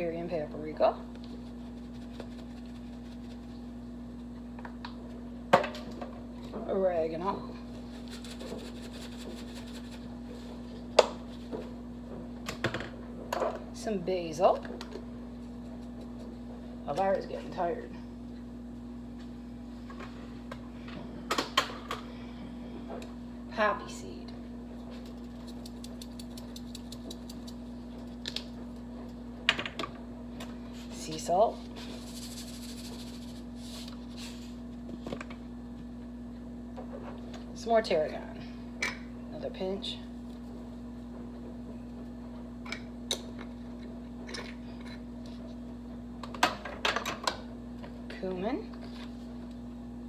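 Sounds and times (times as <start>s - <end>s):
steady electrical hum: 0.0s - 50.0s
seasoning shaken from spice jar: 25.2s - 27.6s, 32.0s - 33.9s.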